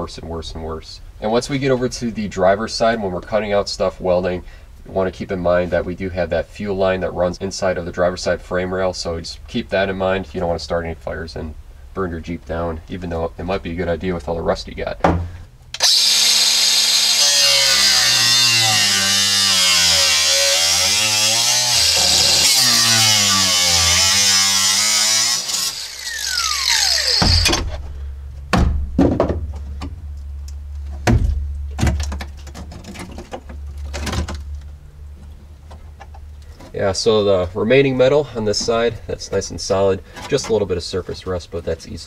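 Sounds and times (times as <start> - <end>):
angle grinder cutting metal: 15.8 - 27.8.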